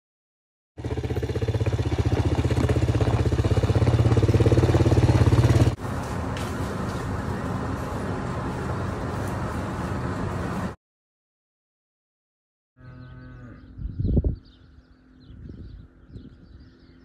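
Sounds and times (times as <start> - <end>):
atv engine running: 0.8 - 10.8
quiet steady rumble: 1.9 - 10.7.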